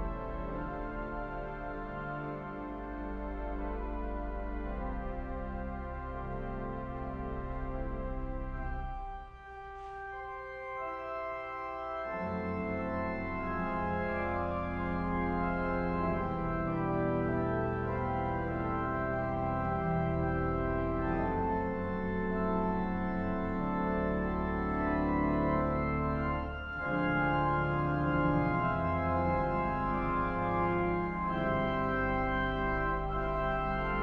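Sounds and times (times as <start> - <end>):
church organ chords: 0.0 - 34.0.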